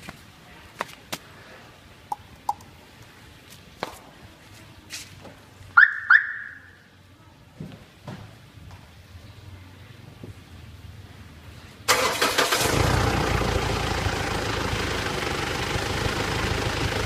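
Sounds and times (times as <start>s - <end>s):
car alarm chirps: 5.8s - 6.9s.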